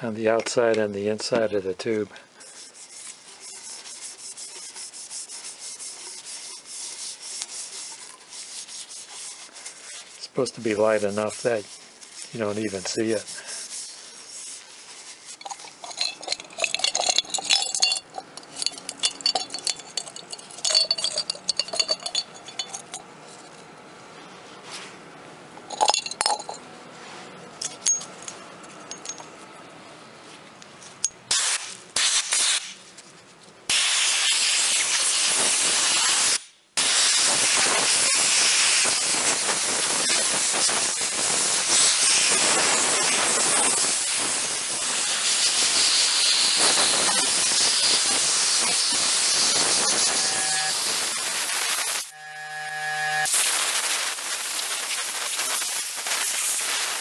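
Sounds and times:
metal parts rattling in glass jar: 15.3 - 23.5, 25.6 - 26.6, 27.6 - 29.3
loud steady spray hiss: 31.3 - 32.8, 33.7 - 57.0.

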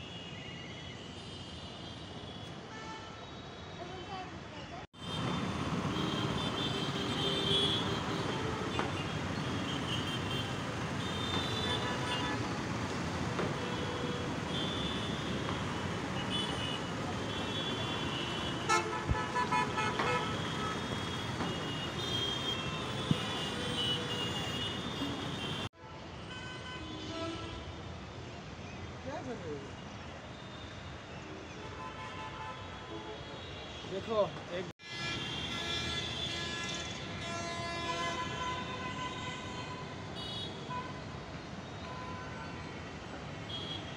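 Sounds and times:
town traffic noise: 0.0 - 43.9
vehicle horns honking: 5.0 - 12.5, 13.4 - 27.7, 31.6 - 42.6, 43.5 - 43.9.

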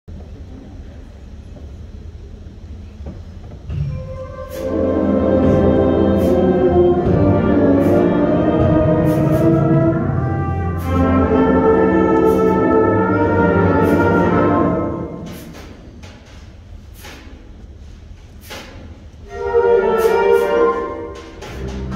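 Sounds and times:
low room hum: 0.1 - 21.9
concert band playing: 4.0 - 15.6.

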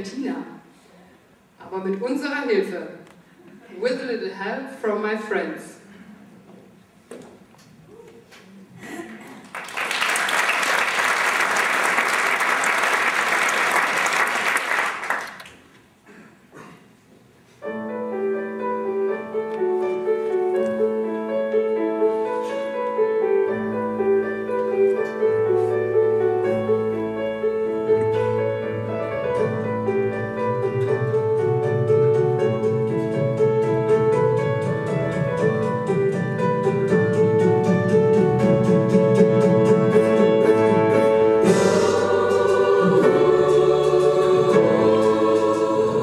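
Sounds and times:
audience applause: 9.4 - 15.6
piano playing held chords: 17.6 - 46.0.

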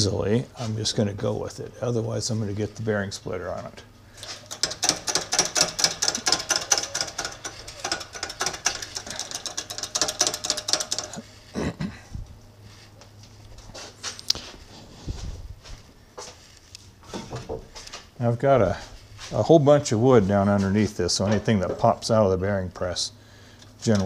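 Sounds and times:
hydraulic press jack clattering: 4.2 - 11.3.

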